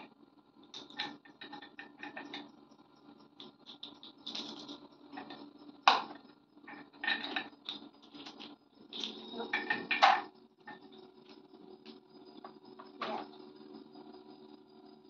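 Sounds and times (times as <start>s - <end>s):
wooden cylinders rattling: 0.7s - 2.5s, 3.4s - 11.9s.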